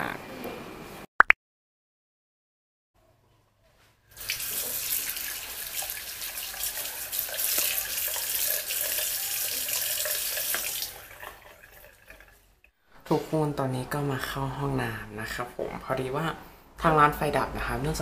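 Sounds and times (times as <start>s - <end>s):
tap water splashing into basin: 4.2s - 12.4s.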